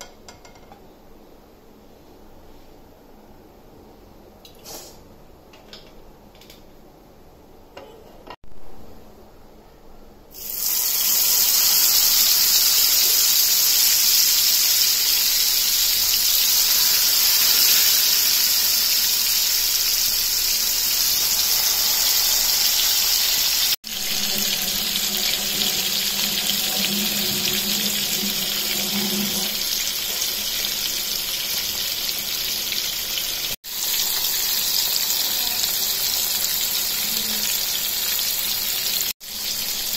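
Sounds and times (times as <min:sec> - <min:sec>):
fish sizzling in hot oil: 0:10.3 - 0:39.9.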